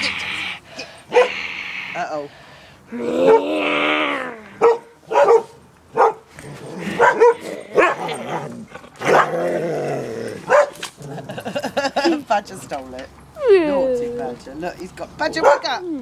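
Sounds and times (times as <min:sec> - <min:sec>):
dog growling or whining: 0:02.9 - 0:04.6, 0:06.4 - 0:11.4.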